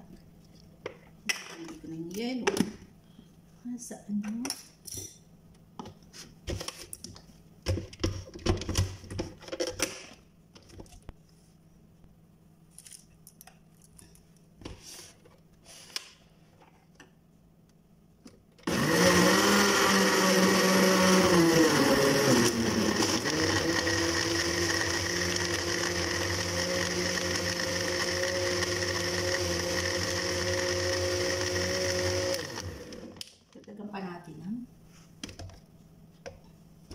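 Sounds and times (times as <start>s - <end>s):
blender motor running: 18.7s - 33.2s.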